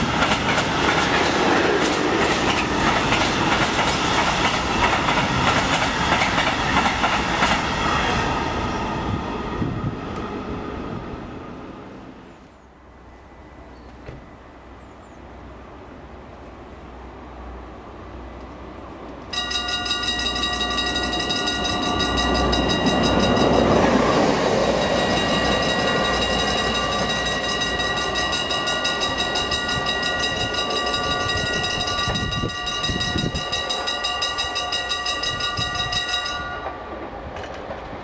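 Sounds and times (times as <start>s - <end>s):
level crossing bell ringing: 19.3s - 36.7s.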